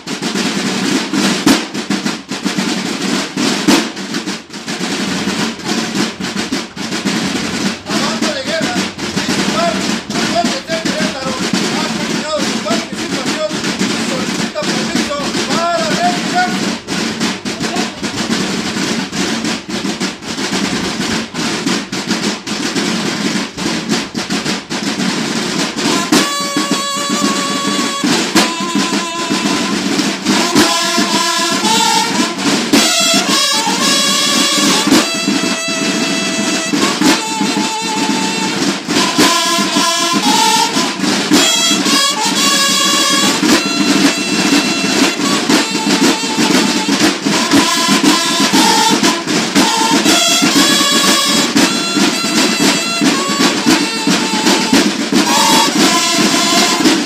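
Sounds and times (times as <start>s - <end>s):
marching band drums: 0.0s - 57.0s
brass horns playing melody: 25.4s - 57.0s.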